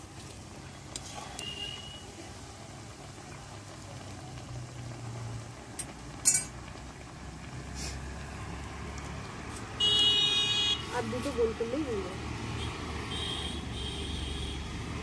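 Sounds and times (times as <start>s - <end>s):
fritters sizzling in oil: 0.0s - 15.0s.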